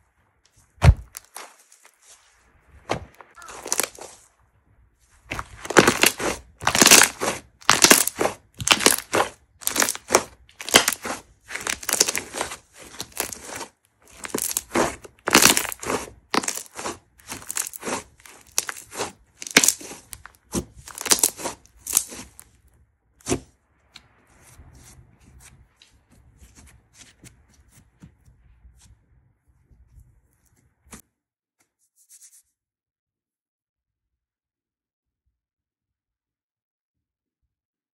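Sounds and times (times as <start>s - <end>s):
soft handling of slime: 0.4s - 4.4s, 5.0s - 31.0s
slime crackling and popping: 0.8s - 2.1s, 3.3s - 4.2s, 5.3s - 22.5s.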